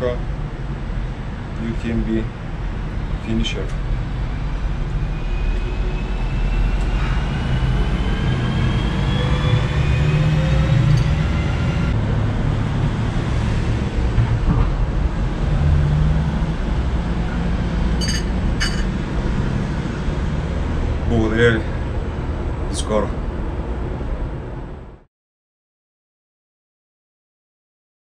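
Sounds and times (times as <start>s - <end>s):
vehicle motor rumbling: 2.2s - 24.9s
cup clinking on saucer: 18.0s - 18.9s.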